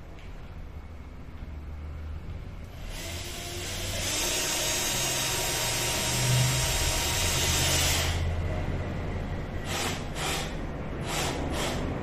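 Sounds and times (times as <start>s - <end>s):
cordless drill whirring: 2.7s - 8.2s, 9.6s - 12.0s.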